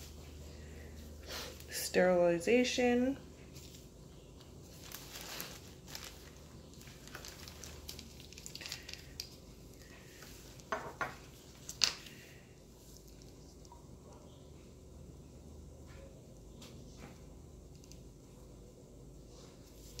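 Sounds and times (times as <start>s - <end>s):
faint rustling: 3.3s - 9.2s.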